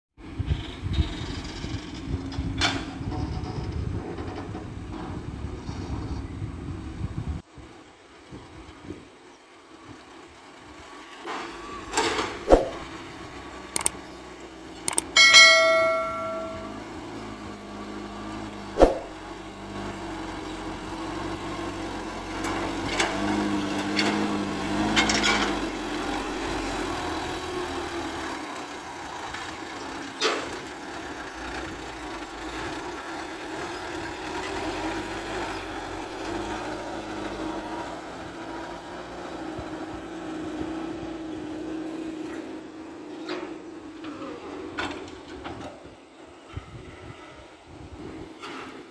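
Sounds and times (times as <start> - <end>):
diesel truck engine under load: 0.2 - 48.9
sharp clicks: 13.7 - 14.0, 14.8 - 15.2.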